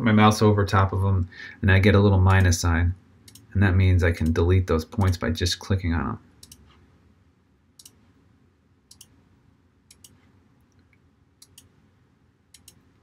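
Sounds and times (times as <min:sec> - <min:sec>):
computer mouse clicks: 0:03.2 - 0:03.5, 0:06.4 - 0:06.8, 0:07.8 - 0:08.0, 0:08.9 - 0:09.2, 0:09.9 - 0:11.8, 0:12.5 - 0:12.9.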